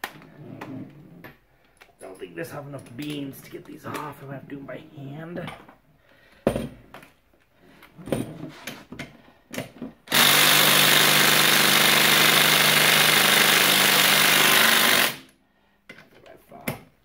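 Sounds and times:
impact driver hammering: 10.1s - 15.3s.

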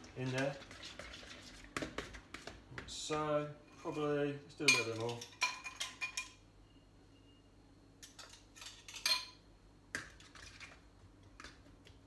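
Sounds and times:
spoon clinking against glass bowl: 4.6s - 6.4s.

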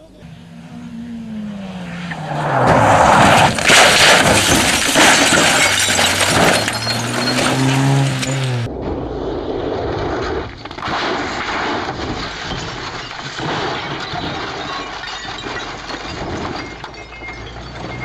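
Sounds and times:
car engine humming: 0.0s - 8.7s
car crashing and rolling over: 2.0s - 18.0s.

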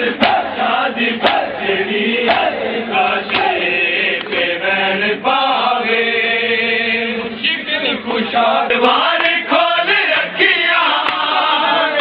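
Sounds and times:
men chanting in unison: 0.0s - 12.0s
hands slapping bare chests: 0.2s - 0.5s, 1.2s - 1.6s, 2.2s - 2.6s, 3.2s - 3.6s.

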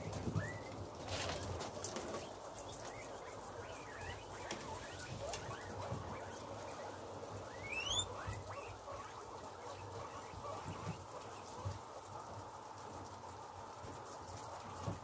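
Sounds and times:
guinea pig squeaks: 0.0s - 12.1s
guinea pigs munching: 0.0s - 15.0s
guinea pig rising whistle: 0.4s - 0.7s, 2.9s - 10.7s.

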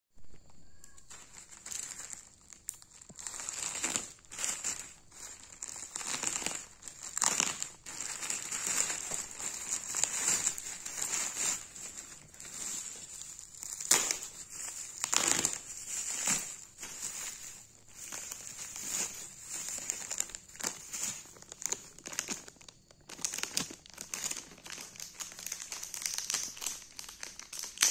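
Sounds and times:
plastic bag and bubble wrap crinkling: 0.4s - 27.9s.

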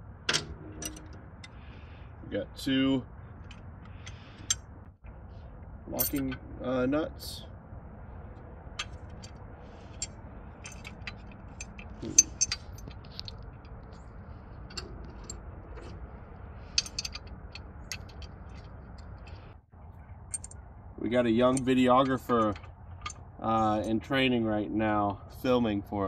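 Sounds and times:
metal hardware clicking and clinking: 0.3s - 1.6s, 6.0s - 6.4s, 8.7s - 19.4s, 20.2s - 20.6s.

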